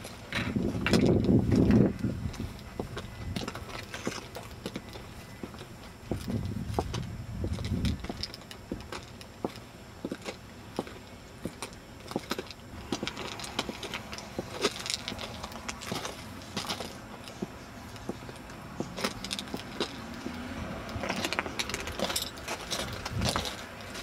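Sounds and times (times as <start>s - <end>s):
footsteps crunching on gravel: 0.0s - 24.0s
light metallic jingling: 21.0s - 24.0s.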